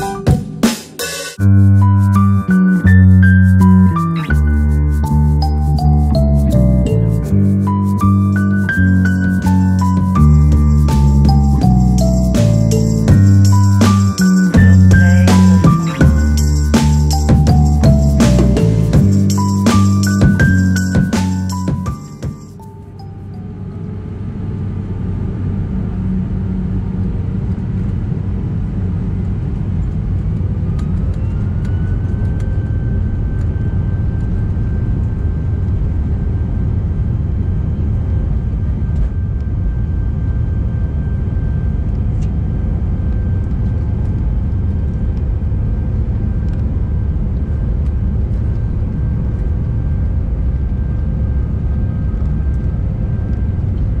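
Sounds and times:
loud engine noise: 1.4s - 21.9s
rising engine whine: 1.4s - 54.0s
jet engines low rumble: 15.6s - 54.0s.

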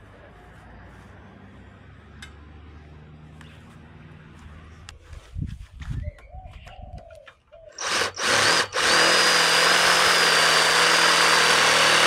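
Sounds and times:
electric drill boring through metal: 7.8s - 12.0s.

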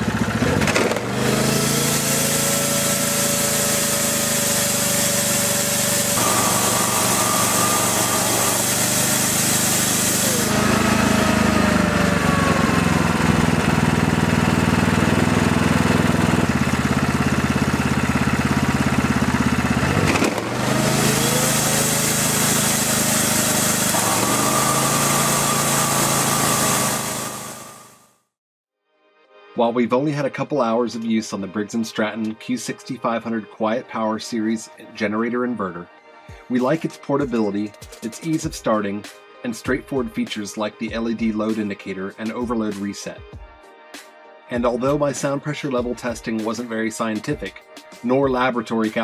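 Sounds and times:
generator engine running: 0.0s - 28.1s
shop vacuum whining: 0.0s - 28.1s
heavy low running sound: 4.8s - 22.8s.

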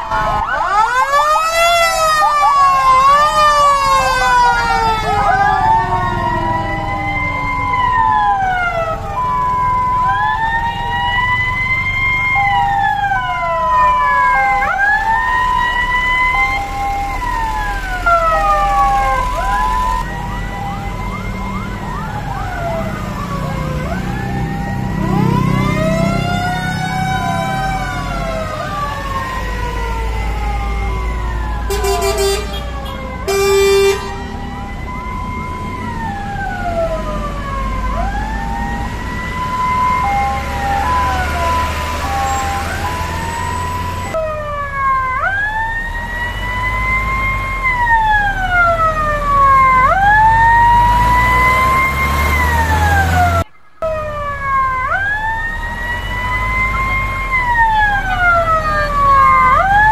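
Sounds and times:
fire truck sirens wailing: 0.0s - 59.9s
truck engines rumbling: 0.0s - 59.9s
horn blasts: 31.7s - 34.4s.

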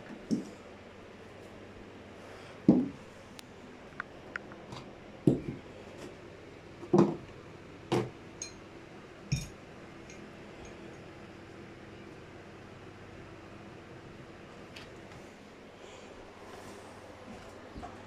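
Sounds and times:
small clicks and clinks: 8.4s - 8.6s, 9.3s - 11.1s.

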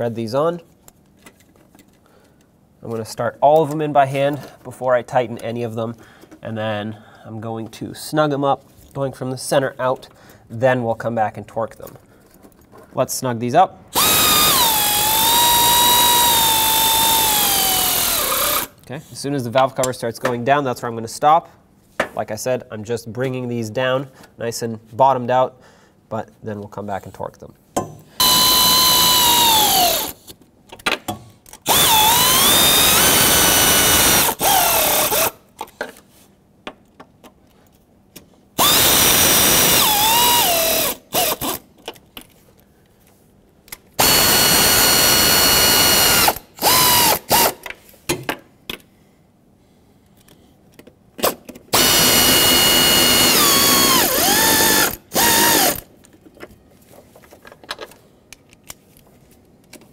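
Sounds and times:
power tool whining: 13.9s - 18.8s, 28.2s - 30.2s, 31.7s - 35.3s, 38.6s - 41.6s, 44.0s - 47.6s, 51.7s - 55.9s.

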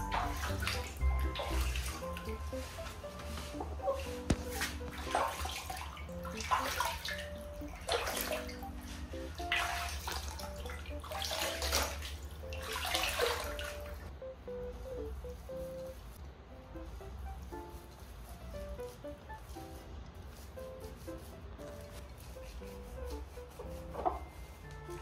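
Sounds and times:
water splashing in a plastic basin: 0.0s - 2.3s, 3.9s - 8.6s, 9.3s - 14.1s
soft background music: 0.0s - 25.0s.

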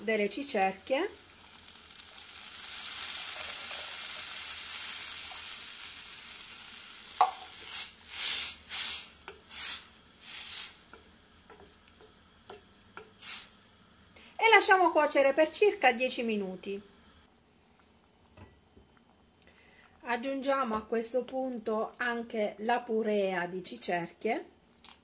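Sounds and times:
stew sizzling in a pot: 0.0s - 16.5s
water pouring into pot: 1.0s - 10.6s
wooden spatula stirring pot: 10.6s - 13.2s.

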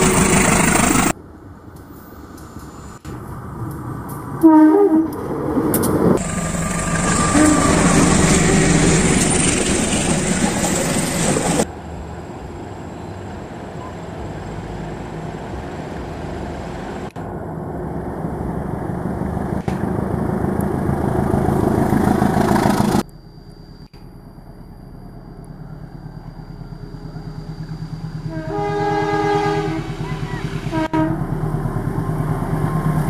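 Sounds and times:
locomotives running hard: 0.0s - 1.2s
regular pulsing: 0.0s - 1.2s, 6.1s - 11.7s, 20.3s - 28.6s
steady high whine: 0.0s - 3.6s, 5.8s - 33.0s
train horn: 4.4s - 5.2s, 7.2s - 8.7s, 28.2s - 31.3s.

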